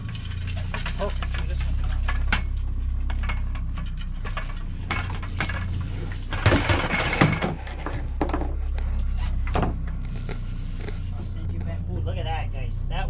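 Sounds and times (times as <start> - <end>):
clatter with sharp knocks: 0.0 - 8.6
boat engine humming: 0.0 - 13.0.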